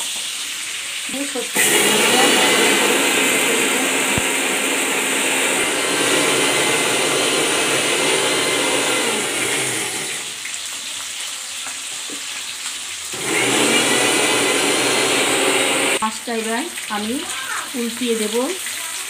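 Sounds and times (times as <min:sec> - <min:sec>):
fish sizzling in a frying pan: 0:00.0 - 0:01.6, 0:10.3 - 0:13.2, 0:16.0 - 0:19.0
electric mixer grinder running: 0:01.5 - 0:10.4, 0:13.2 - 0:16.1.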